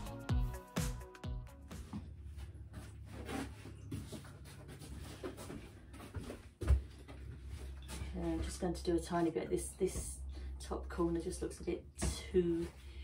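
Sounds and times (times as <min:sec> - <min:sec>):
rustling and handling noises: 0:01.8 - 0:08.6
low steady hum: 0:02.0 - 0:13.0.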